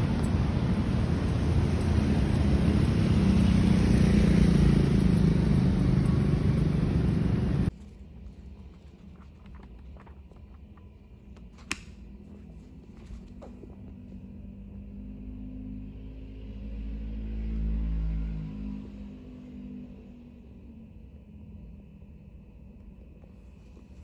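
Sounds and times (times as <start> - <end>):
street noise: 0.0 - 24.0
book pages riffled and turned: 7.7 - 14.2, 23.2 - 24.0.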